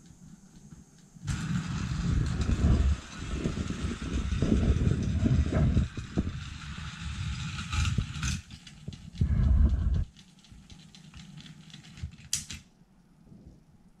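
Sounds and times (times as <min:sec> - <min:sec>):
toy train motor rattling: 0:01.3 - 0:12.6
small clicks: 0:07.7 - 0:12.7.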